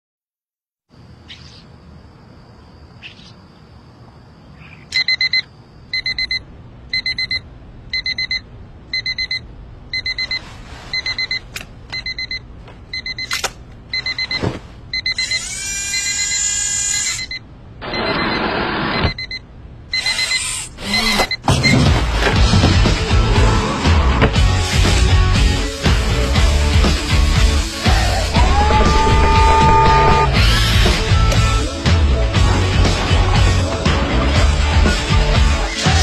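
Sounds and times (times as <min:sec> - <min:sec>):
digital alarm clock beeping: 0:04.9 - 0:10.4, 0:11.0 - 0:11.4, 0:12.0 - 0:12.4, 0:13.0 - 0:13.3, 0:13.9 - 0:21.8.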